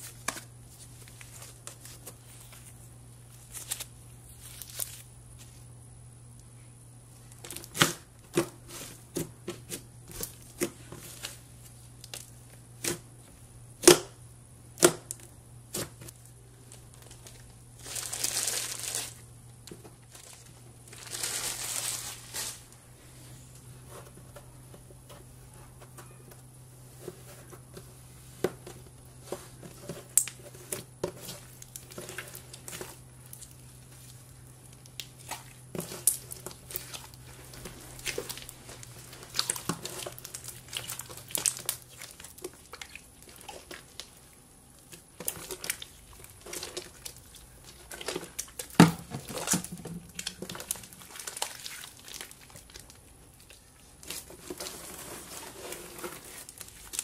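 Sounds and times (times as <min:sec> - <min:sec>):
slime crinkling: 0:00.0 - 0:05.6, 0:15.1 - 0:22.8, 0:26.9 - 0:57.0.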